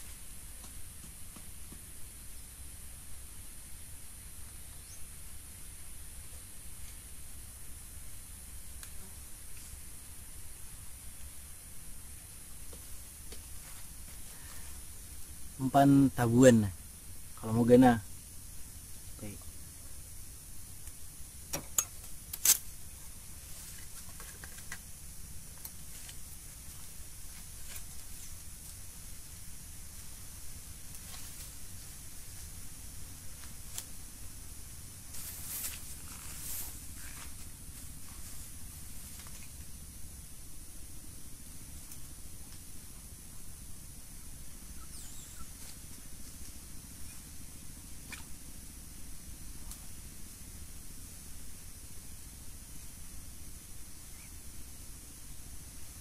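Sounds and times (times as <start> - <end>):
steady high hiss: 0.0 - 56.0
faint short sharp chirps: 44.8 - 45.6.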